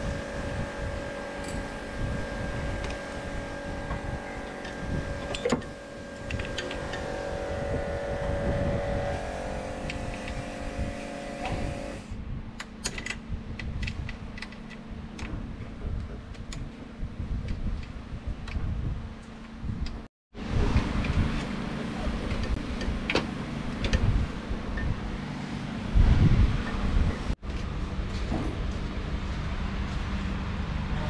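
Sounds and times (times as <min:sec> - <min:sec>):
steady mechanical hum: 0:00.0 - 0:31.0.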